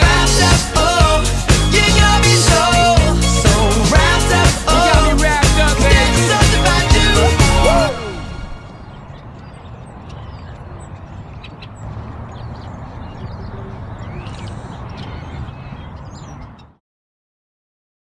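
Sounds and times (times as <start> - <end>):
wind buffeting microphone: 8.6 - 16.6.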